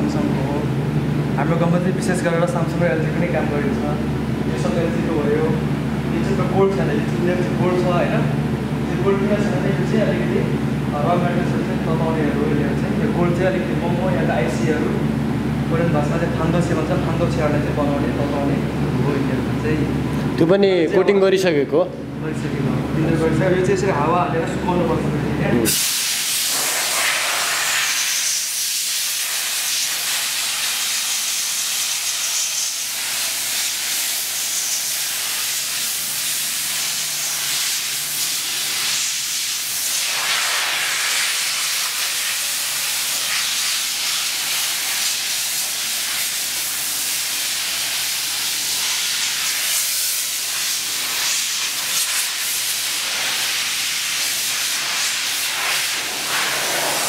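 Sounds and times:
compressed air hissing: 25.7s - 57.0s.

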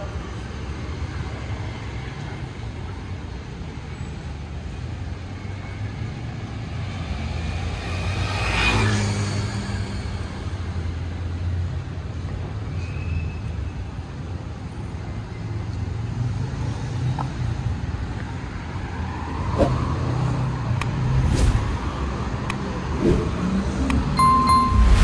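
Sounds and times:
low rumble of passing cars: 0.0s - 13.3s, 14.0s - 25.0s
short electronic ding: 24.2s - 25.0s.

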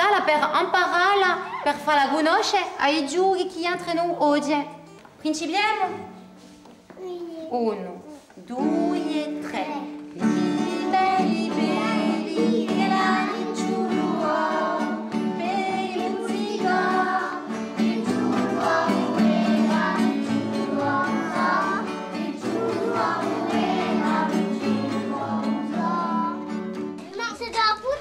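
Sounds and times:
children singing in chorus: 10.2s - 26.6s.

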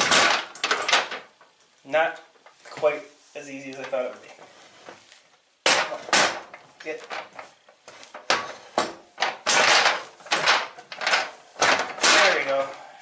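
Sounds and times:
steel parts clanking and rattling: 8.2s - 12.6s.

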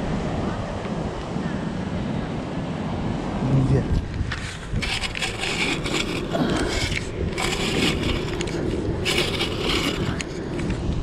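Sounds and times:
wind on microphone: 0.0s - 11.0s
sand crunching and scraping: 4.2s - 11.0s.

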